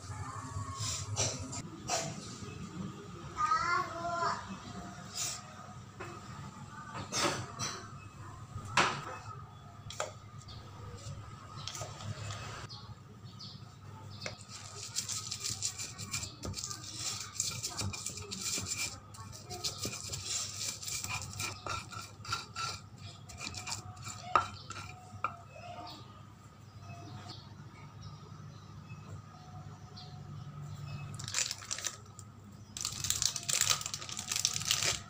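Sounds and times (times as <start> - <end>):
stone pestle grinding in mortar: 14.3 - 25.5.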